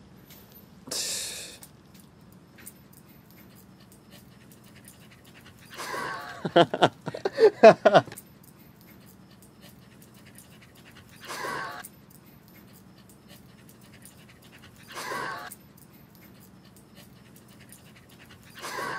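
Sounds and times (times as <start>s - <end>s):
faint steady hum: 0.0s - 18.9s
dog panting: 2.4s - 18.9s.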